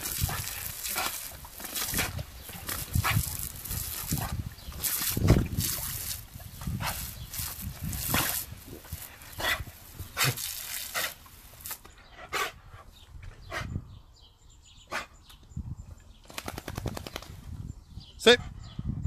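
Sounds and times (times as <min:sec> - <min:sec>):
water spraying from garden hose: 0:00.0 - 0:11.9.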